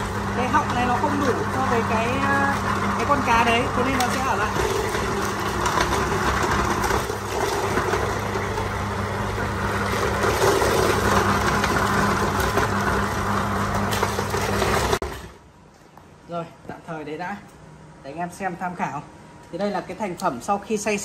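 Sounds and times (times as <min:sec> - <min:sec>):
grinder crushing bones: 0:00.0 - 0:15.4.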